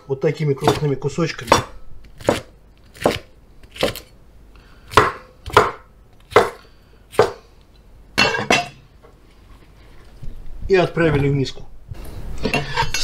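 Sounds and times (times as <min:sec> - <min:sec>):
cleaver chopping on wooden board: 0:00.6 - 0:04.1, 0:04.9 - 0:07.4.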